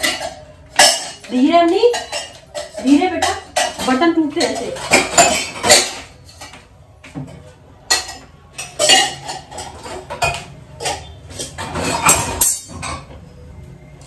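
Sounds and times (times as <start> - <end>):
utensils and dishes clattering: 0.0 - 13.3.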